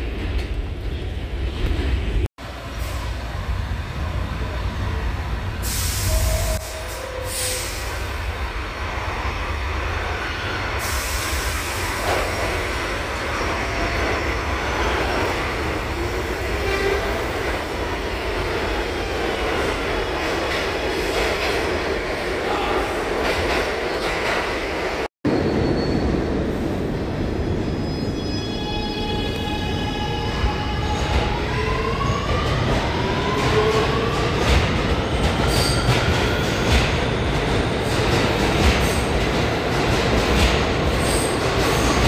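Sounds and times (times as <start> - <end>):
subway train wheels rumbling: 0.0 - 42.0.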